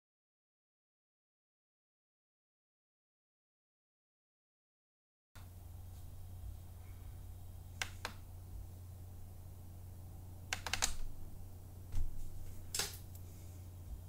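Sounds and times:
steady low hum: 5.4s - 14.0s.

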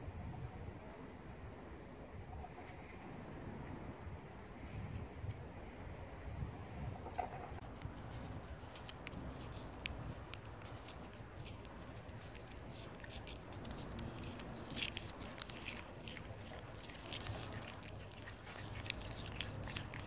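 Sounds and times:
cat licking and smacking: 7.6s - 20.0s.

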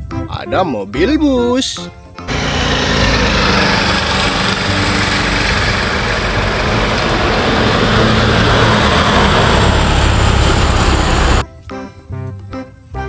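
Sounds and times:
bus driving past: 2.3s - 11.4s.

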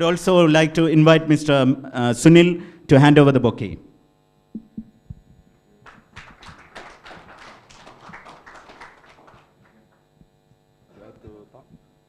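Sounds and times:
faint audience applause: 5.8s - 10.0s.

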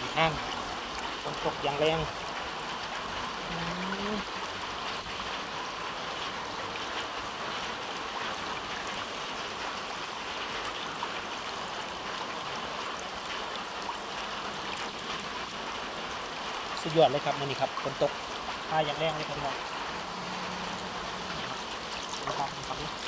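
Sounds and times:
rainwater rushing over road: 0.0s - 23.0s.

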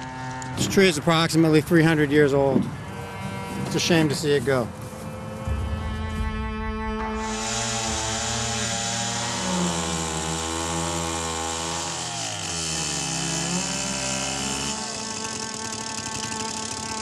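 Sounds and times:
chainsaw cutting wood: 0.0s - 1.5s, 7.1s - 17.0s.

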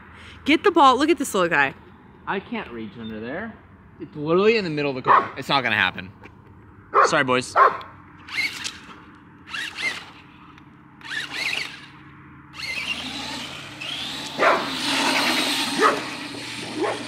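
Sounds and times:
dog yipping: 5.1s - 5.4s, 7.0s - 7.9s, 14.4s - 14.8s, 15.8s - 17.0s
rc truck electric motor whirring: 8.2s - 17.0s.

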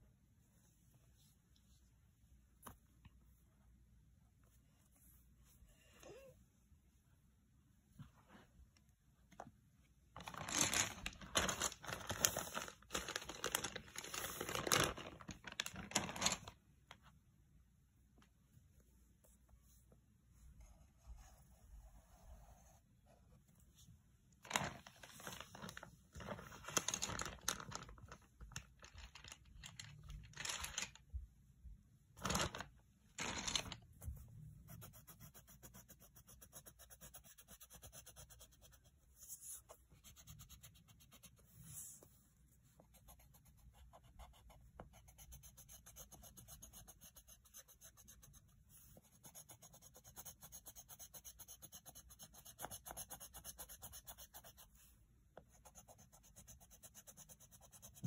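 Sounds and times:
paper rustling: 10.2s - 16.6s, 24.4s - 31.1s, 32.2s - 34.2s
pencil scratching on paper: 34.0s - 42.2s, 42.8s - 54.8s.

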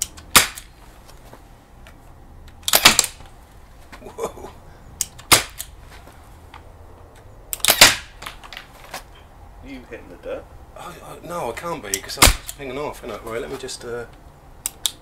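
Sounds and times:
air rifle shots: 0.3s - 0.7s, 2.6s - 3.2s, 5.2s - 5.7s, 7.5s - 8.2s, 12.2s - 12.6s.

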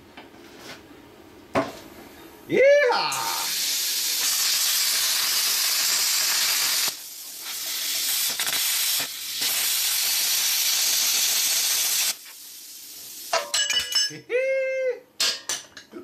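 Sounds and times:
plasma cutter hissing: 3.3s - 13.3s.

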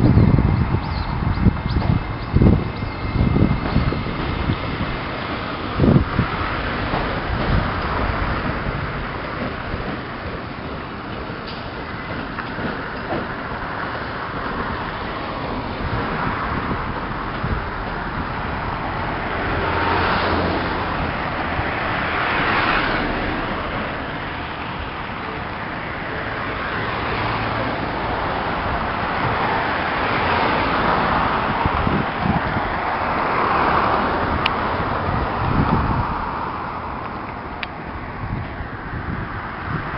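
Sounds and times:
background traffic rumble: 0.0s - 39.9s
cars passing: 0.0s - 39.9s.

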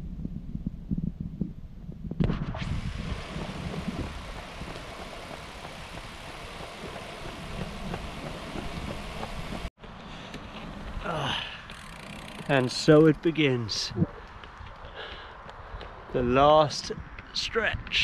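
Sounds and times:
wind on microphone: 0.0s - 9.7s, 12.5s - 18.0s
bicycle riding on asphalt: 2.7s - 16.1s.

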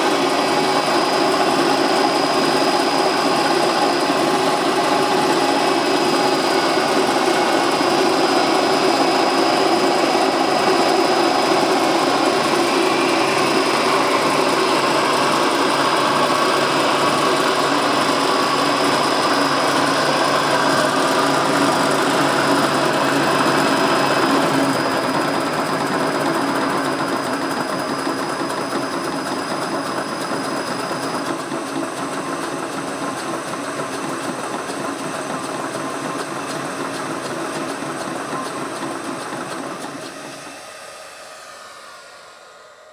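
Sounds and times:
milling machine whirring: 0.0s - 42.9s
thin high whine: 37.8s - 42.9s.

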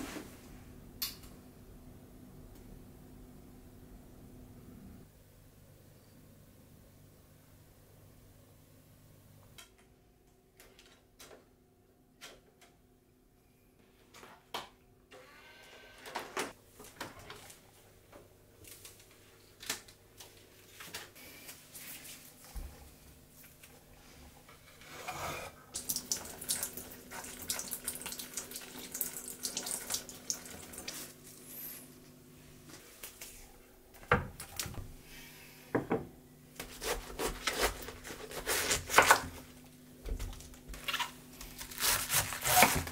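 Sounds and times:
tap water running: 24.8s - 31.8s
cabbage leaves snapping and tearing: 40.7s - 42.9s.

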